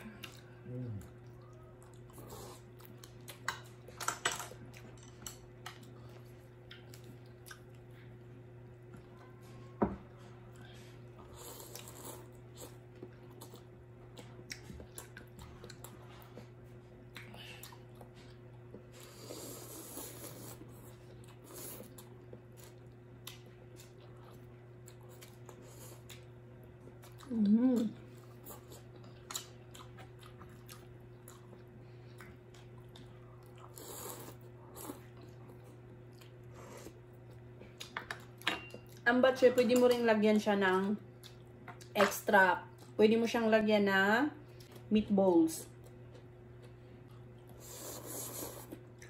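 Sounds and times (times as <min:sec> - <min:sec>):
people chewing and slurping noodles: 0:00.0 - 0:39.0, 0:45.8 - 0:49.0
steady low hum: 0:00.0 - 0:49.0.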